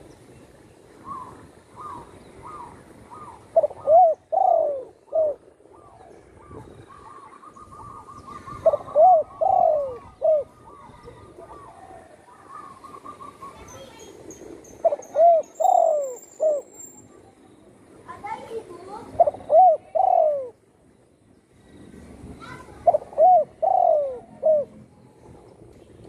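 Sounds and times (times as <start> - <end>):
dove cooing: 1.0 - 13.9, 14.8 - 16.7, 19.0 - 20.6, 22.8 - 24.8.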